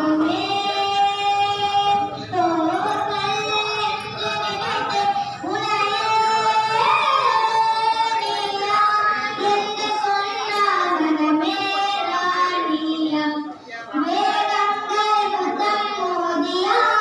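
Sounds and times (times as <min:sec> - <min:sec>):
high voice singing slow song: 0:00.0 - 0:13.0.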